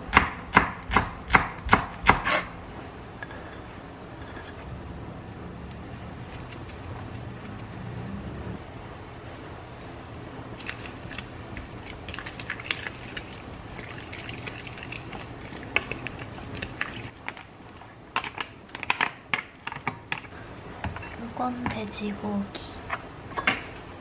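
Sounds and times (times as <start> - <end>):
food packaging crackling and clicking: 10.2 - 19.8.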